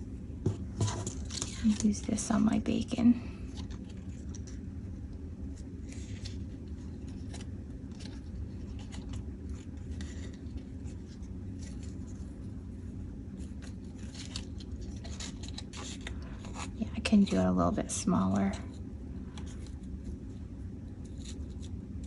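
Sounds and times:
steady low hum: 0.0 - 22.0
fabric and paper rustles: 5.5 - 12.5.

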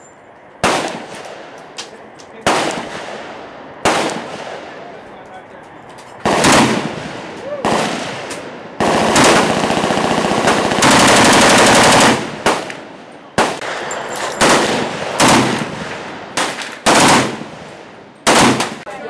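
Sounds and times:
machine gun automatic fire: 6.2 - 6.8, 8.8 - 12.7, 13.4 - 15.8, 16.4 - 17.4, 18.3 - 18.8.

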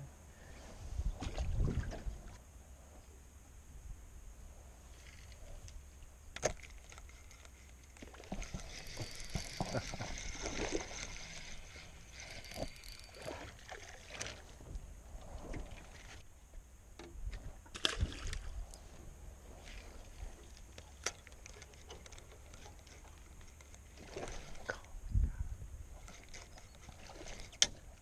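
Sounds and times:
light water sounds: 4.7 - 25.2
fishing rod and reel clicks: 5.0 - 14.4, 19.7 - 24.6, 26.0 - 27.9.

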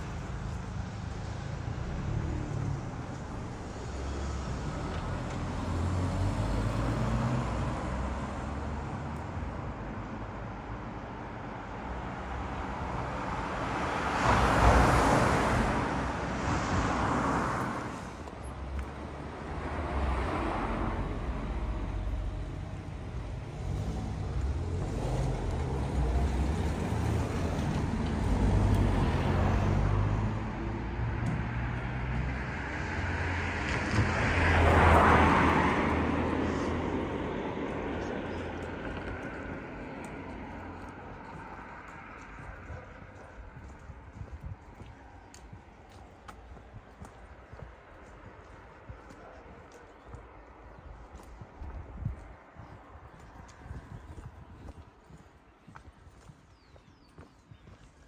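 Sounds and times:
hum of passing vehicles: 0.0 - 58.0
car passing close by: 1.0 - 9.2, 12.3 - 43.6.

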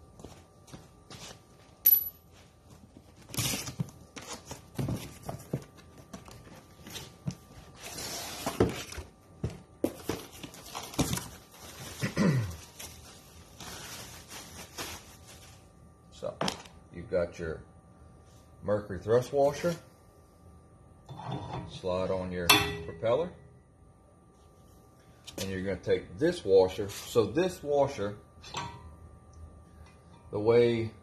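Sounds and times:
plastic bag rustling: 10.2 - 15.7.

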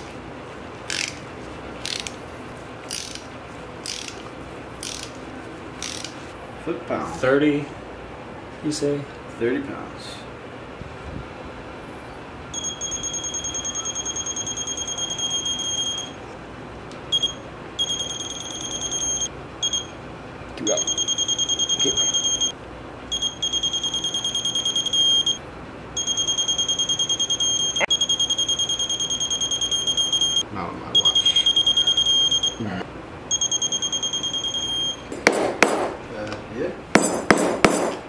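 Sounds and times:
torque wrench beeping: 5.8 - 6.2, 17.1 - 19.9, 20.7 - 22.5, 33.3 - 35.1.

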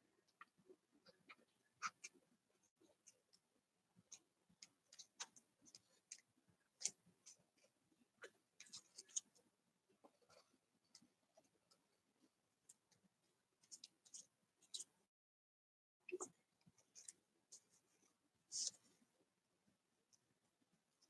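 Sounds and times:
fingers clicking and rustling on paper: 0.2 - 11.9.

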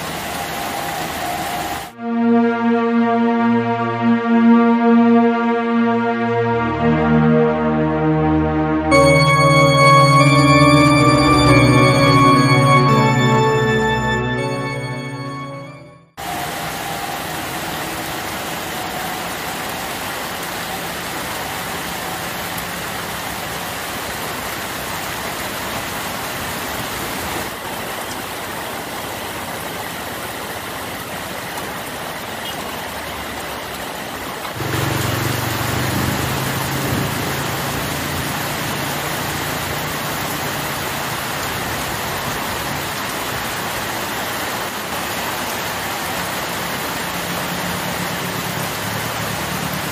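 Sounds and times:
heavy rain on leaves: 0.0 - 2.0, 16.2 - 49.9.

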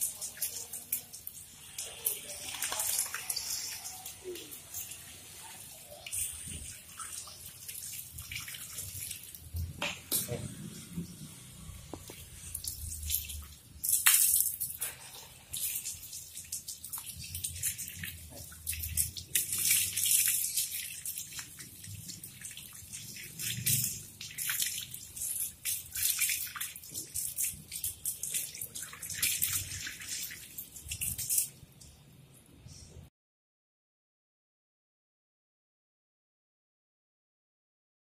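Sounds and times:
water splashing on tiled floor: 0.0 - 32.0.

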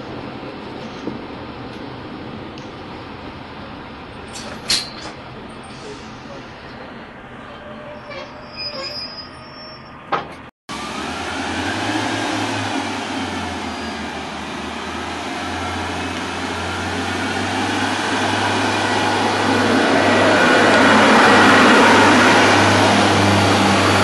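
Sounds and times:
train wheels rumbling: 10.0 - 24.0
diesel engine humming: 10.7 - 24.0.

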